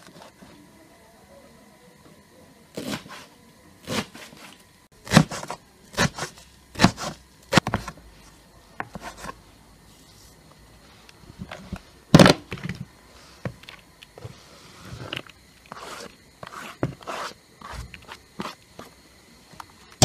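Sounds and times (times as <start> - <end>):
knife chopping on wooden board: 5.0 - 7.9.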